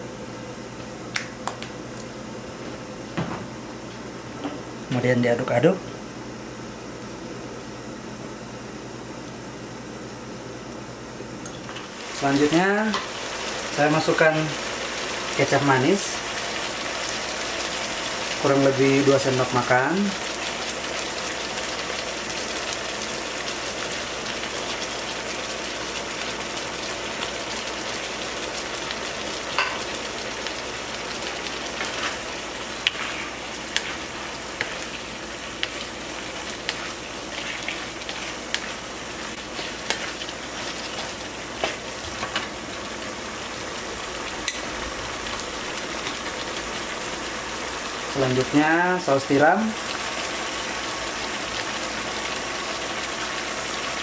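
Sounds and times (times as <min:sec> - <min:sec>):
chicken sizzling in a frying pan: 0:11.8 - 0:54.0
wooden spatula scraping a pan: 0:31.8 - 0:42.4.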